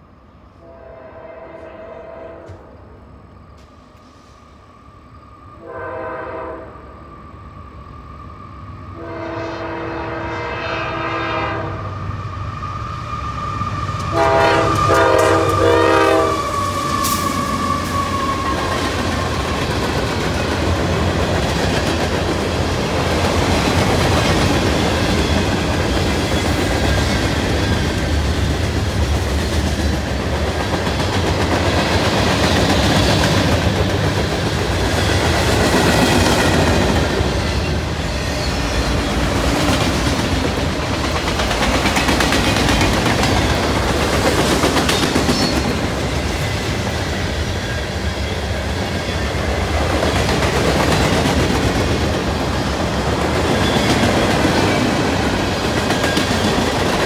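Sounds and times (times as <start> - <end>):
locomotive air horn: 0.6 - 2.8, 5.6 - 6.8, 9.0 - 12.0, 14.0 - 18.4
train wheels clacking on rail joints: 14.0 - 57.0.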